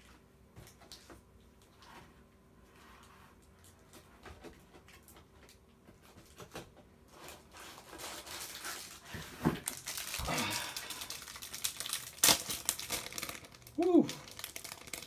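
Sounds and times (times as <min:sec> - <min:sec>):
plastic crinkling and rustling: 0:04.8 - 0:15.0.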